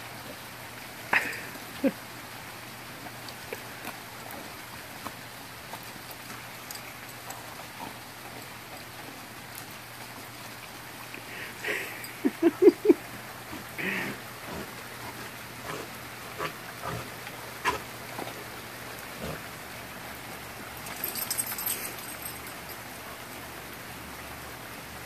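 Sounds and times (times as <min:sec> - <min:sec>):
falling water hissing: 0:11.1 - 0:21.6.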